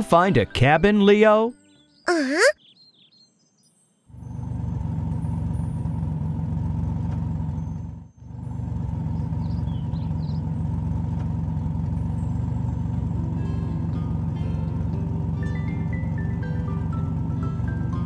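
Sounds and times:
cartoon toy truck engine: 4.2 - 18.0.

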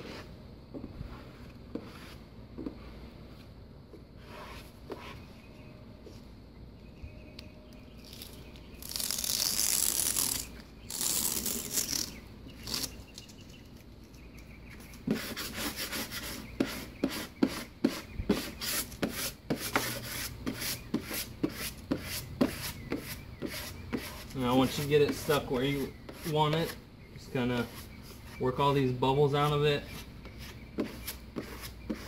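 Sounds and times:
squeegee rubbing over paper: 1.0 - 3.0.

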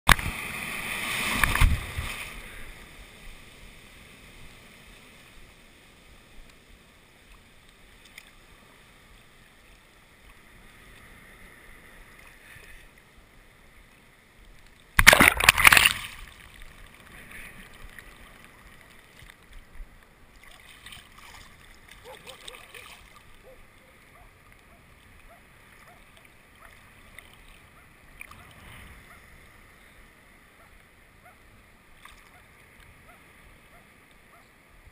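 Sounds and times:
water lapping with small splashes: 0.1 - 34.9
water rushing over camera: 0.1 - 34.9
breaking whitewater: 15.0 - 16.4.

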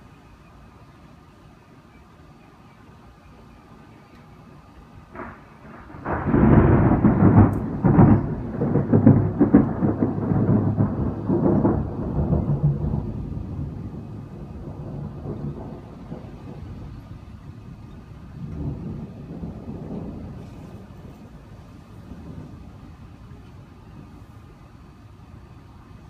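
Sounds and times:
rolling thunder rumble: 4.6 - 26.0
thunder crack: 5.1 - 23.7.

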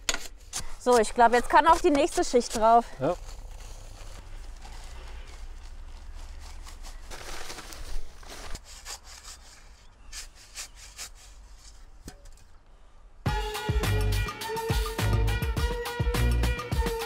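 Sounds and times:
dry concrete mix pouring from sack: 3.0 - 11.2
music: 13.3 - 17.0.

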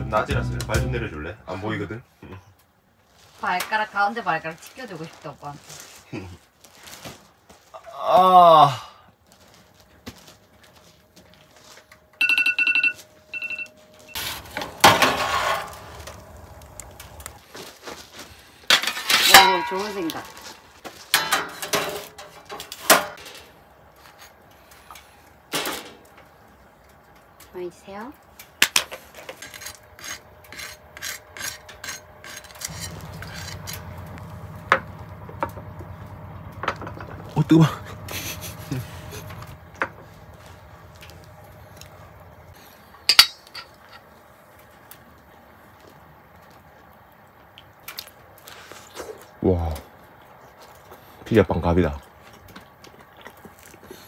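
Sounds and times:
low steady hum: 9.2 - 17.5, 18.1 - 54.0
phone timer alarm beeps: 12.2 - 14.2
metal peel scraping oven floor: 14.1 - 24.4, 29.0 - 35.6
knife sawing through crisp crust: 29.2 - 33.9.

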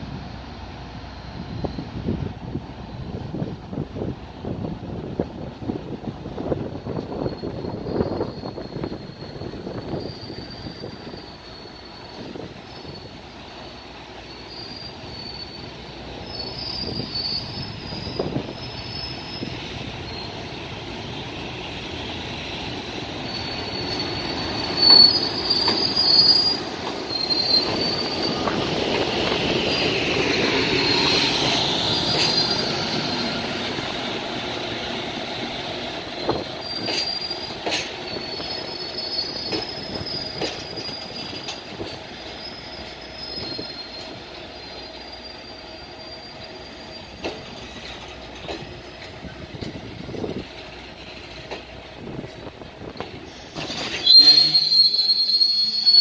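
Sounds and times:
electric locomotive passing: 0.0 - 56.0
wheel squeals: 7.0 - 20.6, 23.1 - 50.3, 52.9 - 56.0
wheels clacking over rail joints: 22.6 - 38.8, 39.4 - 44.4, 47.1 - 54.7.

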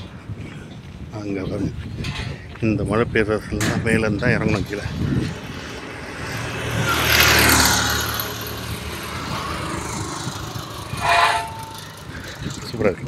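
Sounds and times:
vehicle driving past: 4.9 - 12.6.

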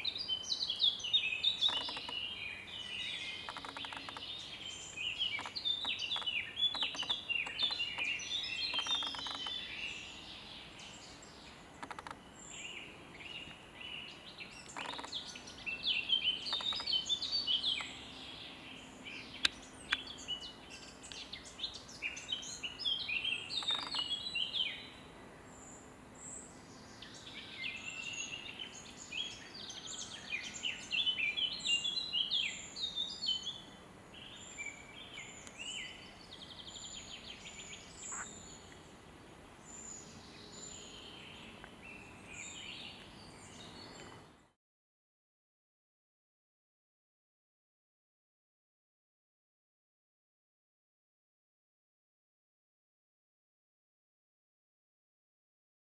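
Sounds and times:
songbirds chirping and warbling: 0.0 - 44.6.

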